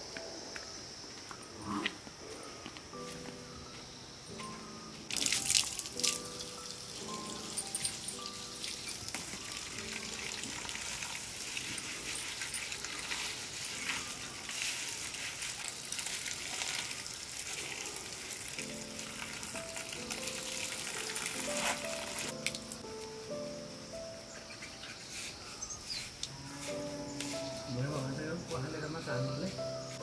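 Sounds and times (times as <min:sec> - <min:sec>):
soft background music: 0:00.0 - 0:30.0
tap water splashing onto leaves: 0:05.1 - 0:07.4, 0:08.6 - 0:22.8.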